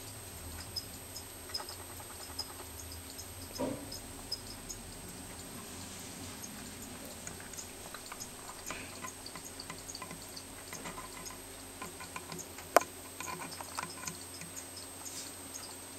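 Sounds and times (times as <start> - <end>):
faint small clicks and ticks: 0.0 - 15.9.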